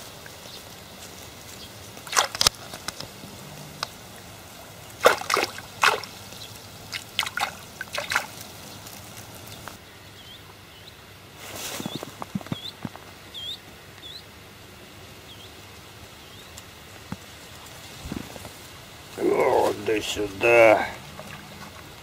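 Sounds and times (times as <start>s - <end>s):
water splashing and sloshing: 1.4s - 9.8s, 17.2s - 22.0s.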